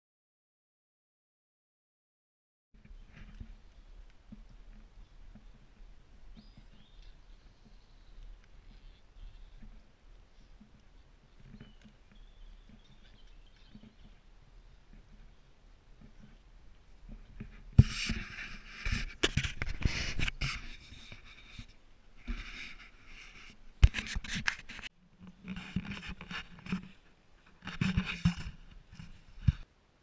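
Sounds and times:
camera handling scraping: 17.4s - 24.9s, 25.5s - 26.9s, 27.6s - 29.6s.

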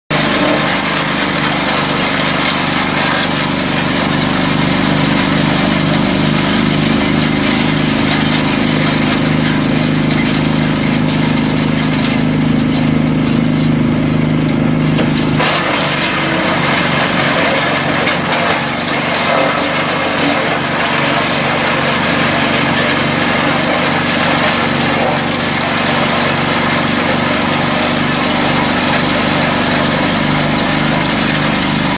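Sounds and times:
garden shredder engine droning: 0.0s - 31.9s.

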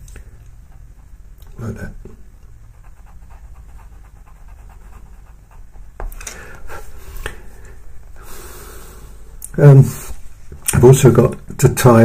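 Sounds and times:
pencil scratching on paper: 2.6s - 6.1s.

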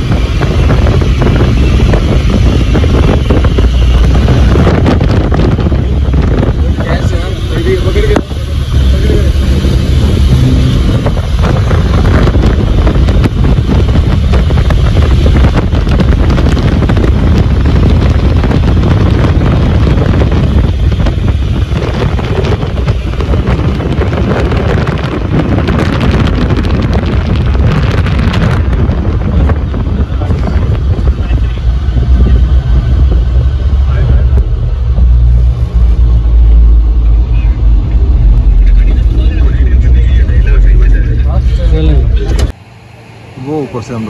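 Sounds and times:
wind buffeting microphone: 0.0s - 43.3s.

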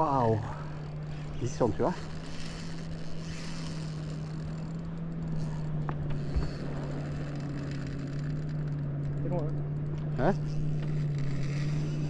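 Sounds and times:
boat motor humming: 0.0s - 12.0s
water noise: 0.0s - 12.0s.

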